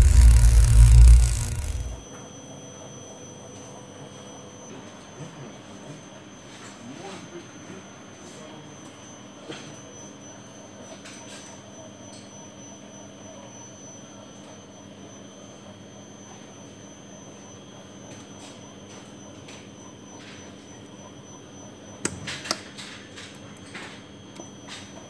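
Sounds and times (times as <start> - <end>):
electrical hum: 0.0 - 2.0
high-pitched motor whine: 0.0 - 4.6.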